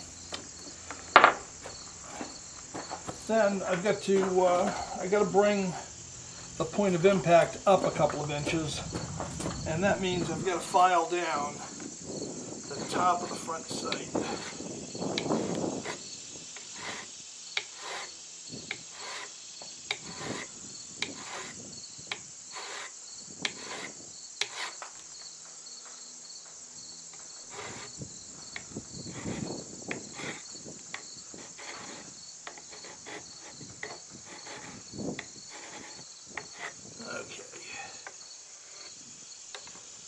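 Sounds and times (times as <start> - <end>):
crickets chirping: 0.0 - 40.0
hand file rasping on metal: 2.1 - 6.0, 12.6 - 21.6, 22.5 - 24.8, 27.4 - 36.9.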